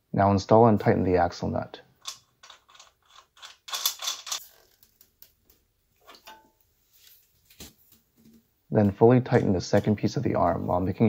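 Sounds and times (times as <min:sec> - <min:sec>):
socket wrench clicking and scraping: 0:02.0 - 0:04.7.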